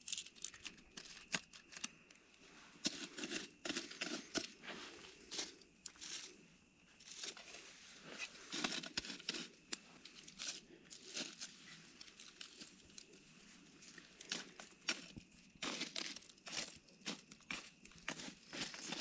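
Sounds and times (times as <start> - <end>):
crinkling and scraping in embers: 0.0 - 19.0.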